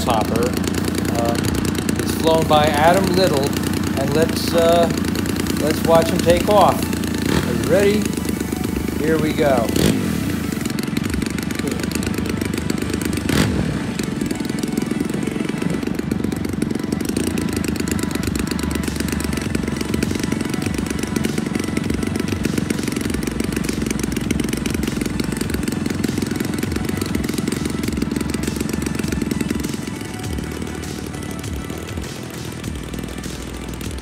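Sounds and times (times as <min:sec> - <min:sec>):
model plane engine running: 0:00.0 - 0:34.0.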